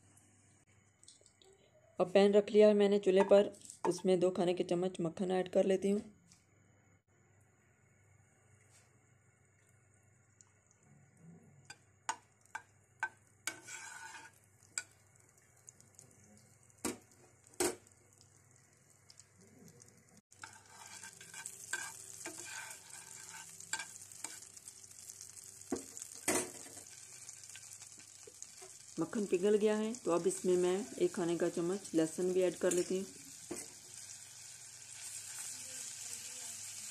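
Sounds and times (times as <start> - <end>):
butter sizzling in a pan: 11.7 - 36.9.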